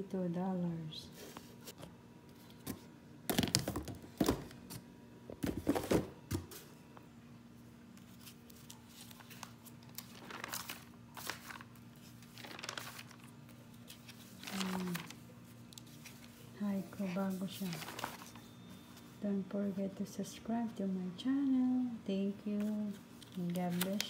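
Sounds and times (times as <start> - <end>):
catalogue pages turning: 8.0 - 19.1, 22.6 - 24.0.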